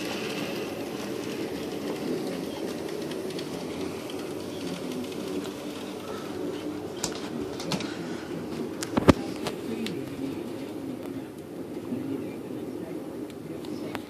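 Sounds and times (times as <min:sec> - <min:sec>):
model train whirring: 0:00.0 - 0:14.0.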